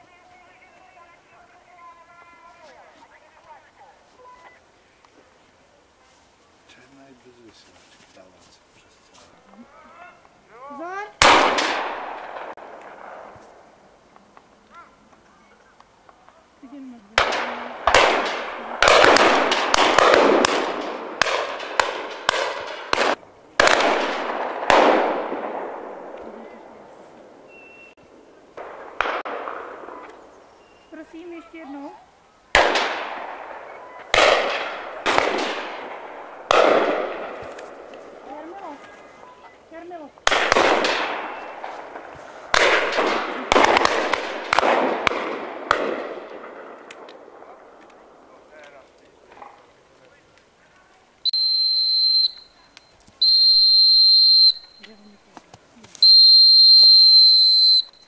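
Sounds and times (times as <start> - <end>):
shotguns firing with echo: 11.2 - 13.3, 17.2 - 26.9, 28.6 - 30.4, 32.5 - 38.3, 40.2 - 48.4
sharp cracks: 11.2 - 15.2, 17.2 - 26.9, 28.6 - 30.4, 32.5 - 39.0, 40.2 - 58.0.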